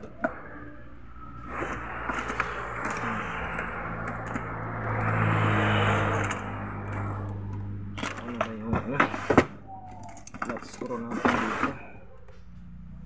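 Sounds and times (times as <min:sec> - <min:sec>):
vehicle passing: 0:00.0 - 0:09.7.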